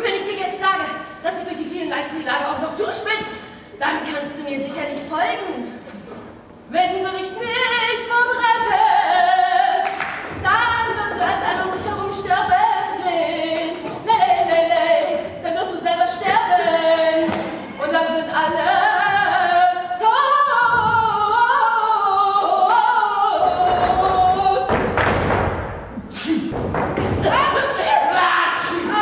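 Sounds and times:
woman singing unaccompanied: 6.7s - 24.7s, 27.2s - 29.0s.

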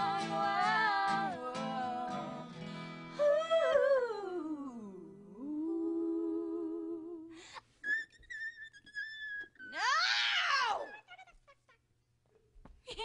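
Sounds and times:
rubber balloon squealing: 7.8s - 11.5s.

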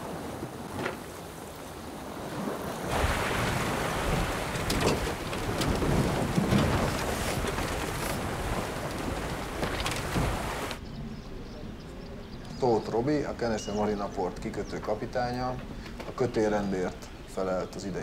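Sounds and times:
crackles of spray: 0.0s - 10.8s
water rushing along hull: 0.0s - 10.8s
wind buffeting microphone: 0.0s - 12.2s.

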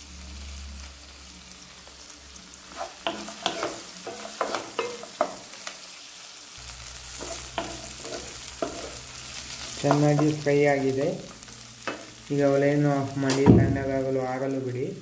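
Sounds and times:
food sizzling in oil: 0.0s - 15.0s
utensil scraping a pan: 2.6s - 5.4s, 7.1s - 10.4s.

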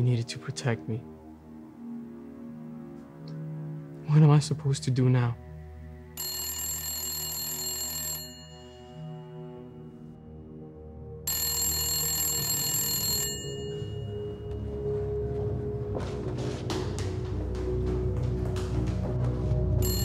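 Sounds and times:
low droning background music: 0.0s - 20.0s
telephone bell ringing: 6.2s - 9.9s, 11.3s - 14.7s, 19.8s - 20.0s.

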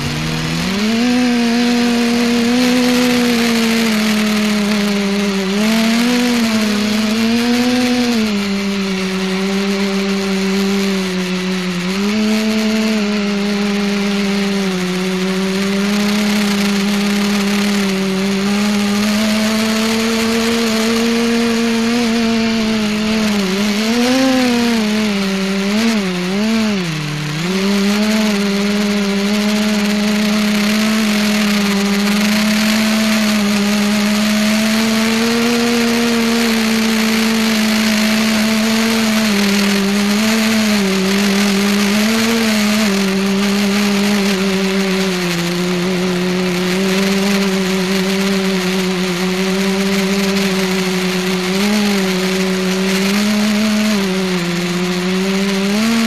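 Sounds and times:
multicopter motors buzzing hum: 0.0s - 56.0s.

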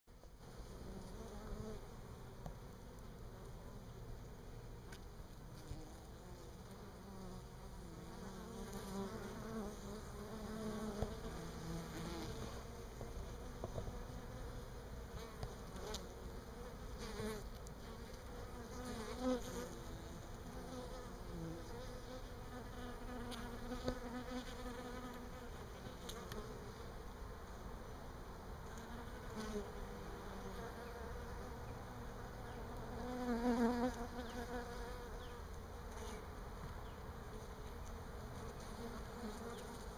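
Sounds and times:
honey bees buzzing: 5.7s - 27.1s, 28.6s - 39.9s.

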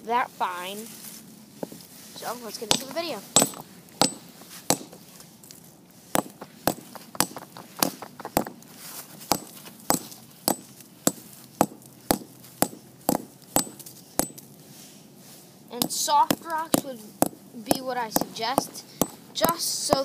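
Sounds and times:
hammer striking brick: 2.7s - 5.0s, 6.1s - 8.6s, 9.3s - 14.4s, 15.8s - 17.4s, 18.2s - 20.0s.

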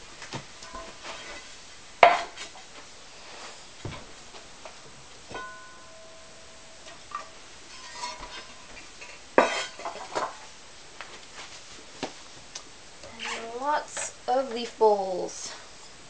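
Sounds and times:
glazed pottery clinking: 5.3s - 10.4s.

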